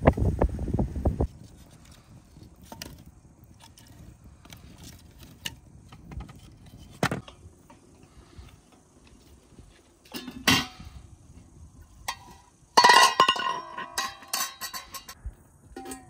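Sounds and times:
wood fire crackling: 1.2 - 12.0.

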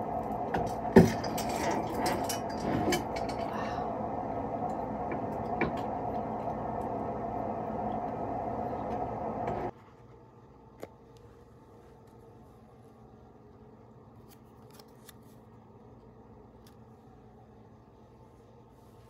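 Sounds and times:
room hum: 0.0 - 19.0.

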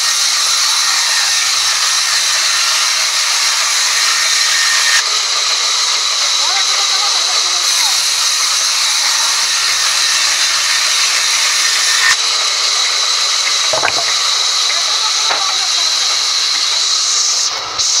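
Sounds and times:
band saw cutting wood: 0.0 - 16.9
knocks of wood handled: 13.8 - 14.2.

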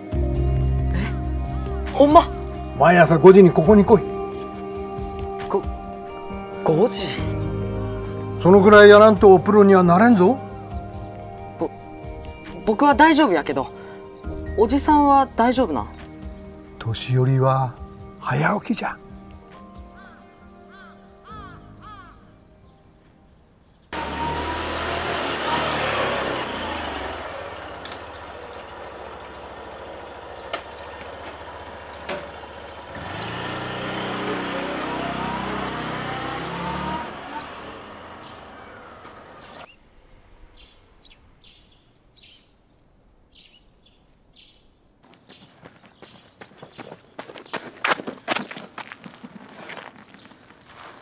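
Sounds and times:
birds chirping: 0.0 - 51.0
vehicle engine passing: 23.9 - 41.6.

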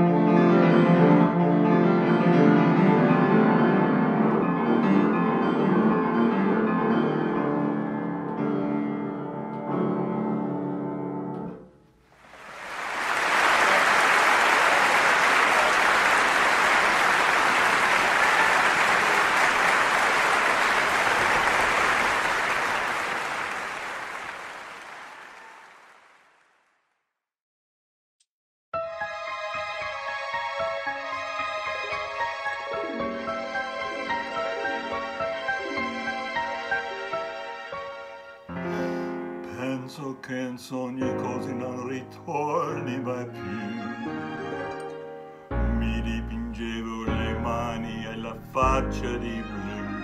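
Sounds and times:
piano playing: 0.0 - 11.8, 28.8 - 50.0
applause: 12.2 - 26.7.

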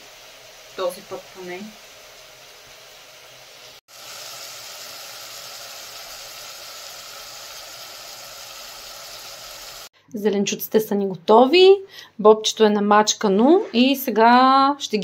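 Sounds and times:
vegetables sizzling in oil: 0.0 - 9.9.

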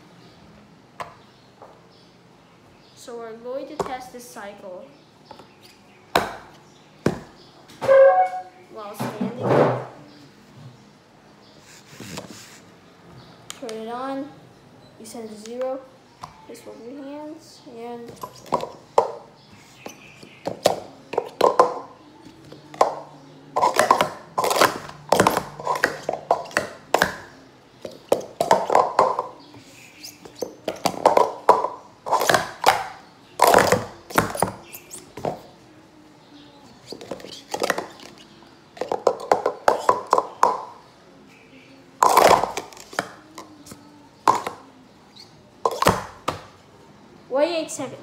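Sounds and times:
plastic cups clattering: 20.4 - 29.4, 30.2 - 35.4, 36.9 - 40.8, 42.0 - 43.5, 44.2 - 44.6, 45.6 - 46.5.

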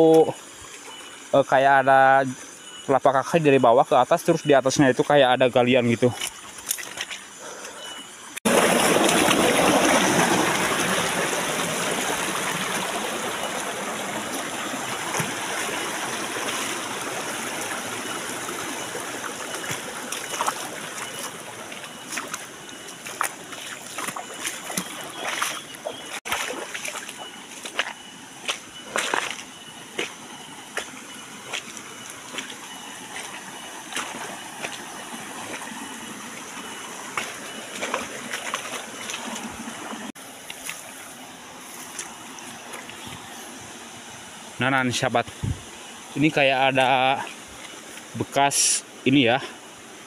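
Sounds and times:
footsteps on stones: 6.1 - 7.3, 19.6 - 34.9
stream rushing over rocks: 8.5 - 50.0.

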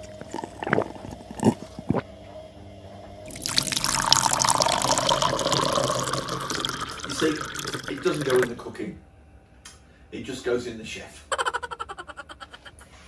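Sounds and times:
person gulping beer: 0.0 - 2.1, 3.3 - 8.6
beer pouring into glass: 3.3 - 8.6.

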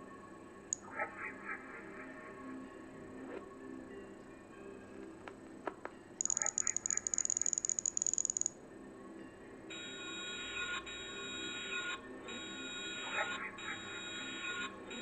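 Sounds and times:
rapid stutter of electronic clicks: 6.2 - 8.5.

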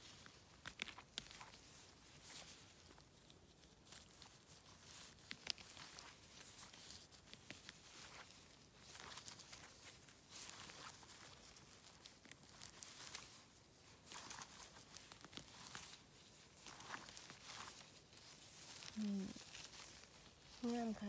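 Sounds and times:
rustling of wet moss and glove: 0.0 - 21.0.

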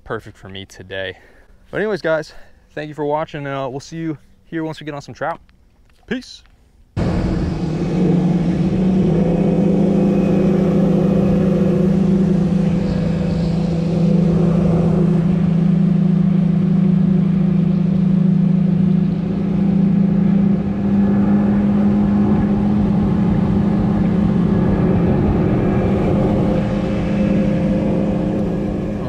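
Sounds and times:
wind: 0.0 - 29.0
outboard motor running: 7.0 - 29.0
water noise: 7.0 - 29.0.

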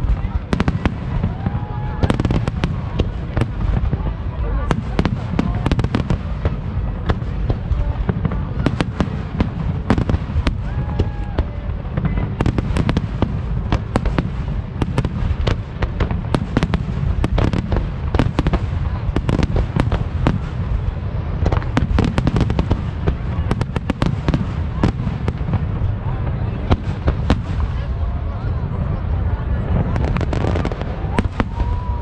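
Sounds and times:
fireworks bangs and crackles: 0.0 - 32.0.

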